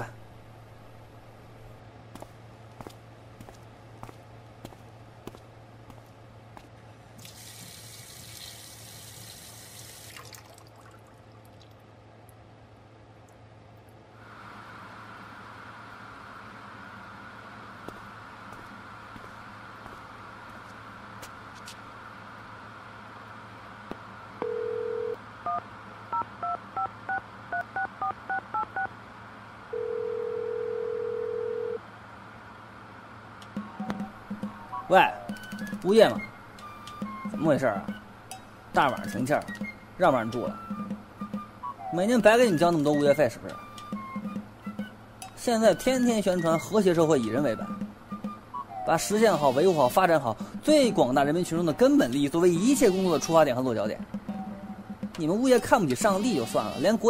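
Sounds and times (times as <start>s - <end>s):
water running from a tap: 7.2s - 11.0s
dial tone: 24.4s - 25.6s, 29.7s - 31.8s
telephone ringing tone: 24.4s - 28.9s, 29.7s - 31.8s.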